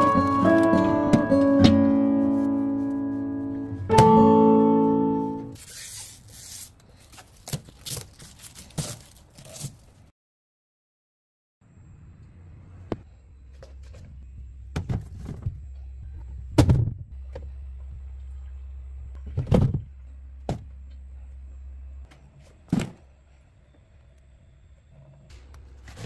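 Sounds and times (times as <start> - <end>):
low steady hum: 11.7 - 26.0.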